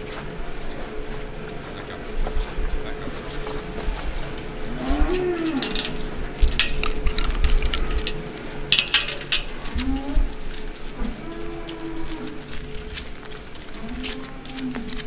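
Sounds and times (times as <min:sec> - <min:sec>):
cow mooing: 0:04.7 - 0:06.1, 0:11.0 - 0:12.5, 0:13.7 - 0:15.0
gate chain rattling against metal latch: 0:05.2 - 0:09.8.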